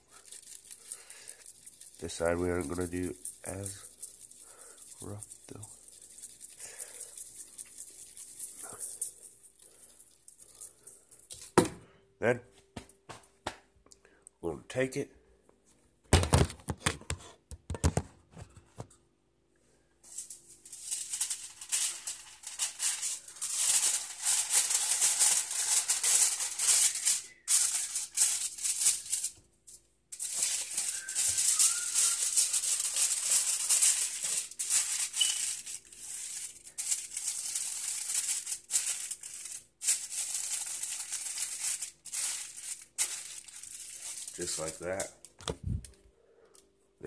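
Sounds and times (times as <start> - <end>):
seasoning shaker rattling: 0.0 - 11.6, 20.0 - 45.8.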